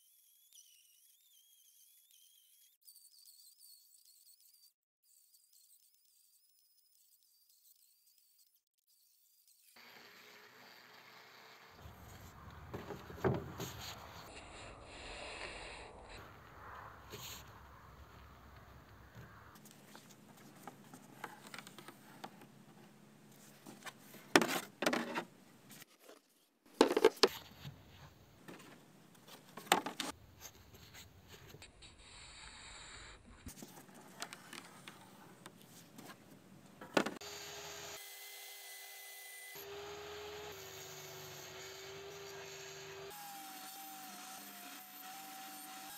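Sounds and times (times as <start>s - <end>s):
hardboard sliding on wood: 11.8s - 15.5s.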